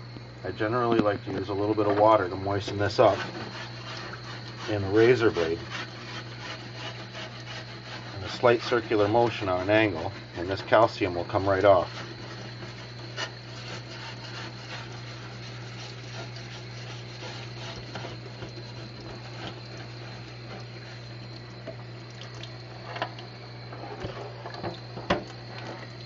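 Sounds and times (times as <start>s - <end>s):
running water hiss: 0.0s - 26.0s
razor scraper on wet glass: 2.6s - 20.6s.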